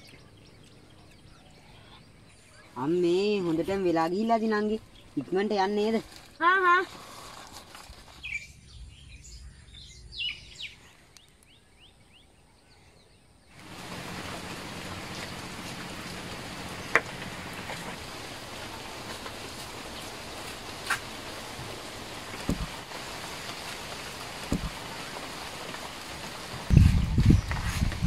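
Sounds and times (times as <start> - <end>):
small birds chirping: 0.0 - 26.0, 26.7 - 28.0
rain hissing: 2.7 - 8.6, 13.5 - 28.0.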